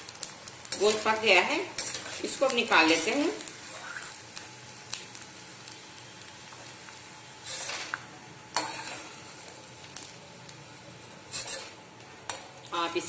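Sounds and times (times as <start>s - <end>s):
gum sizzling in hot oil: 0.0s - 13.0s
steel ladle scraping a pan: 7.4s - 8.0s, 8.6s - 9.1s, 11.3s - 11.8s.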